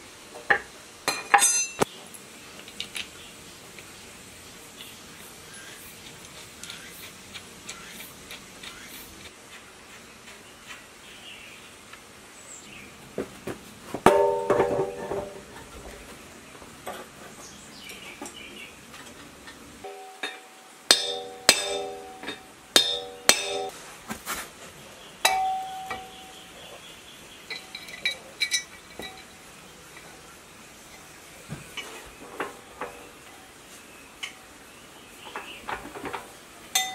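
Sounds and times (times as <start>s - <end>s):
metallic clanks with ringing: 0.5s - 1.8s, 14.1s - 15.5s, 19.8s - 23.7s, 25.2s - 26.4s, 27.5s - 29.4s.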